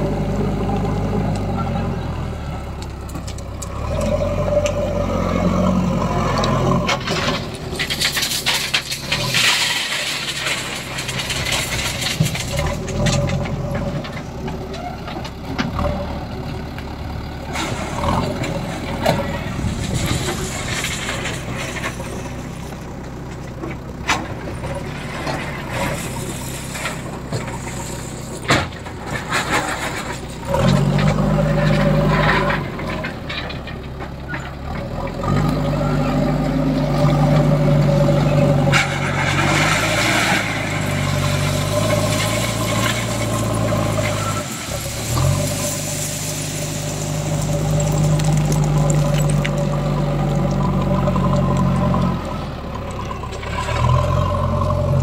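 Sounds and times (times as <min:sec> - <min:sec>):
diesel engine under load: 0:00.0 - 0:55.0
stones rattling and pouring: 0:07.0 - 0:13.5, 0:19.3 - 0:22.8, 0:24.6 - 0:33.4, 0:38.7 - 0:52.1.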